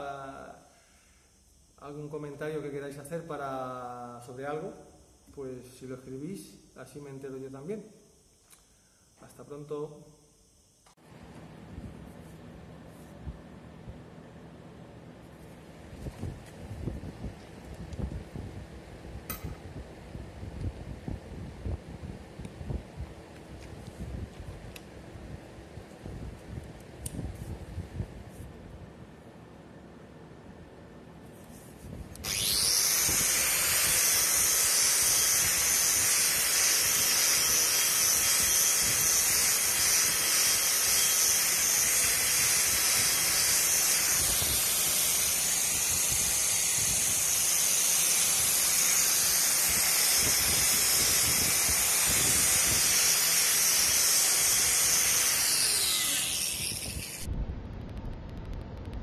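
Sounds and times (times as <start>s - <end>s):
angle grinder whining: 32.1s - 57.3s.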